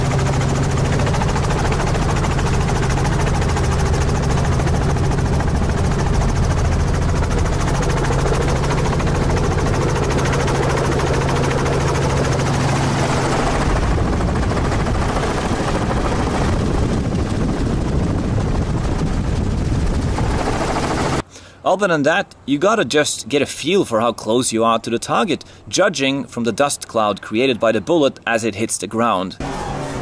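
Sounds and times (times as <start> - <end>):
helicopter engine and rotor: 0.0 - 21.2.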